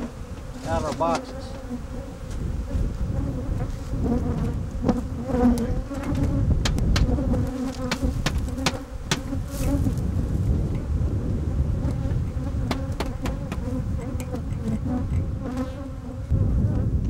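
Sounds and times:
honey bees buzzing: 0:00.0 - 0:17.0
short sharp knocks: 0:12.7 - 0:14.4.

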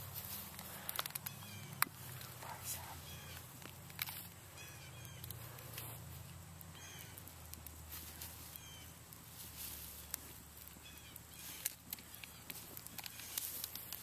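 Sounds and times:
small birds chirping: 0:00.0 - 0:14.0
sharp ticks: 0:03.1 - 0:05.8.

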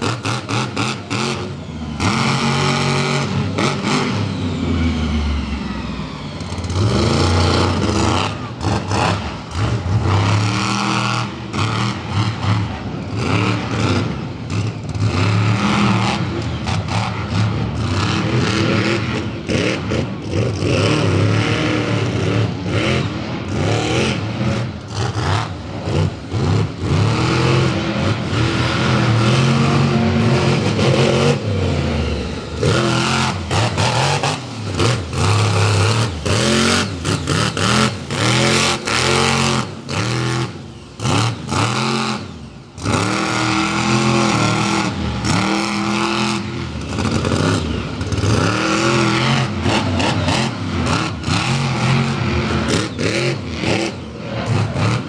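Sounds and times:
monster truck engine revving: 0:00.0 - 0:55.0.

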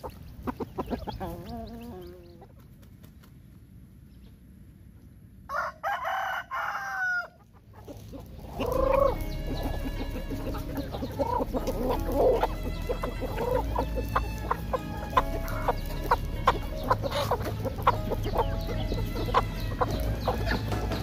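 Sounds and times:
chickens clucking: 0:00.0 - 0:21.0
rooster crowing: 0:05.5 - 0:07.4.

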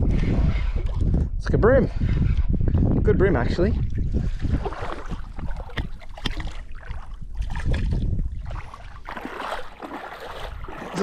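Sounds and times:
water lapping and sloshing: 0:00.0 - 0:11.0
small sharp splashes: 0:04.5 - 0:11.0.

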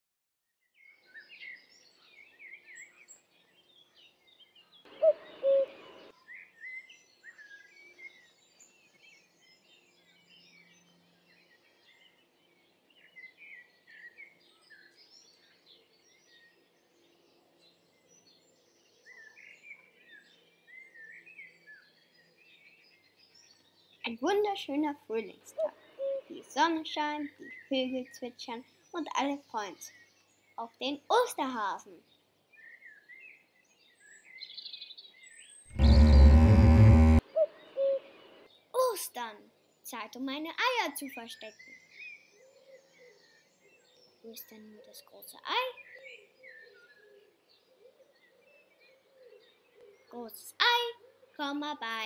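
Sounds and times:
songbirds chirping: 0:00.7 - 0:52.0
short loud sounds: 0:35.7 - 0:37.3.

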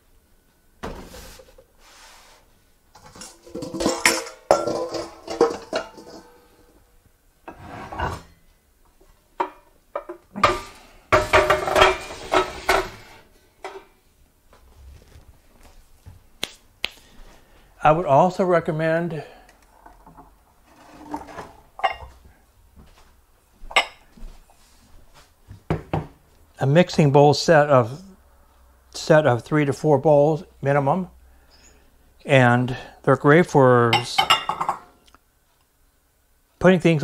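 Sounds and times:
dishes clinking together: 0:03.1 - 0:06.4, 0:34.0 - 0:34.9.

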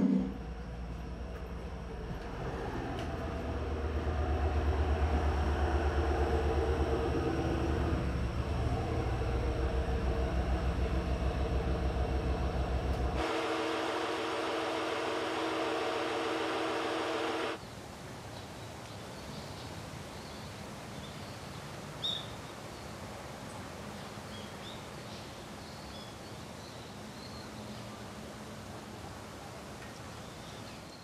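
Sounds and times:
train horn chord: 0:02.2 - 0:17.6.

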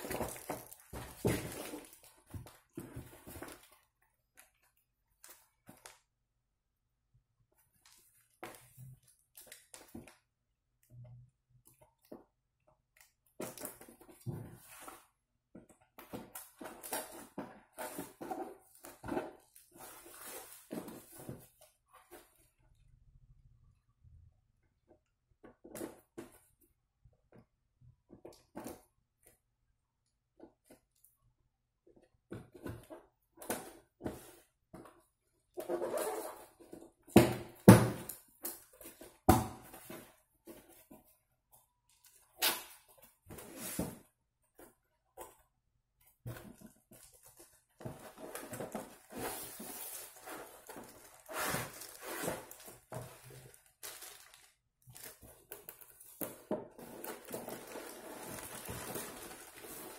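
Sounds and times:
cardboard scraping and rustling: 0:47.8 - 0:53.5, 0:56.8 - 0:59.9.

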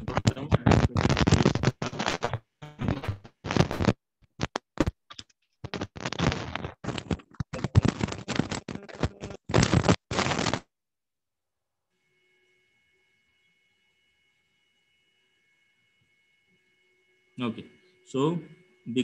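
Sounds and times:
scratching and scraping: 0:00.0 - 0:10.6.

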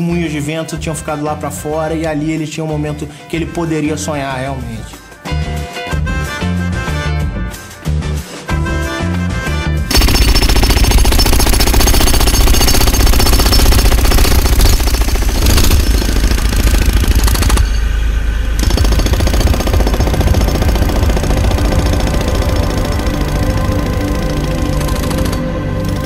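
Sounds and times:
jackhammer breaking concrete: 0:09.9 - 0:17.8, 0:18.6 - 0:26.0.

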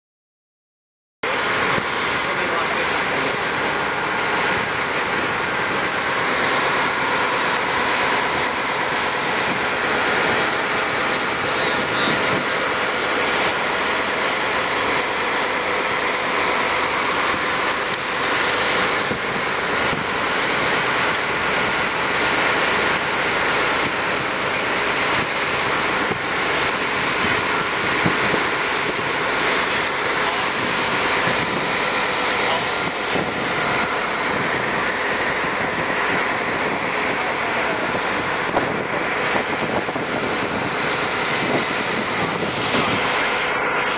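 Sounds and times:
boat engine drone: 0:01.2 - 0:43.9
wake water rushing: 0:01.2 - 0:43.9
wind on microphone: 0:06.6 - 0:12.7, 0:16.4 - 0:20.2, 0:26.9 - 0:43.2.

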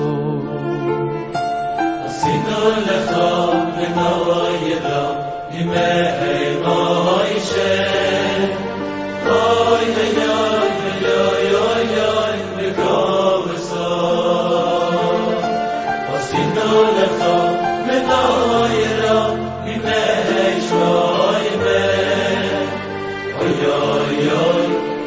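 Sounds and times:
man singing: 0:00.0 - 0:01.2
instrumental backing music: 0:00.0 - 0:25.0.

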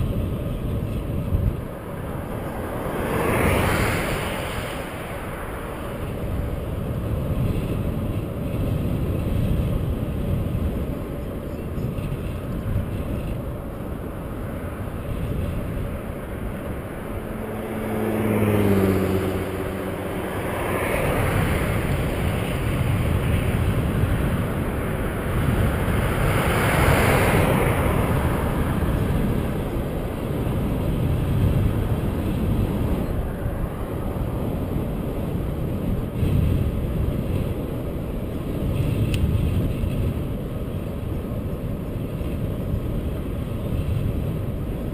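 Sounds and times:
car engine hum: 0:00.0 - 0:39.4
tyre noise of passing cars: 0:00.0 - 0:44.9
wind rushing over microphone: 0:00.0 - 0:44.9.

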